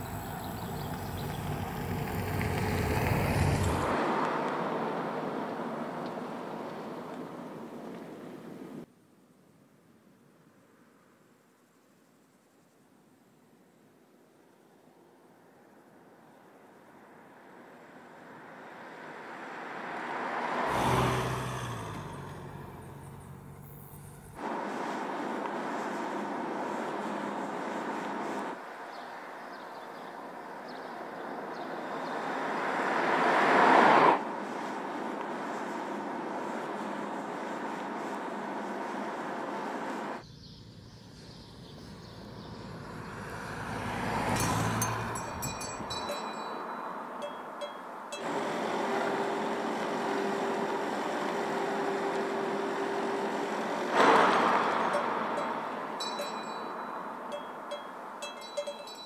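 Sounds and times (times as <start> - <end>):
car passing close by: 0.0 - 7.6, 18.2 - 28.8, 31.4 - 40.2, 41.3 - 47.2, 48.2 - 58.1
low engine hum: 0.0 - 8.7, 20.7 - 28.8, 33.6 - 46.6
tyre noise on asphalt: 0.0 - 8.8, 41.3 - 46.4, 53.3 - 57.2
road and wind noise: 0.0 - 12.2, 12.8 - 59.0.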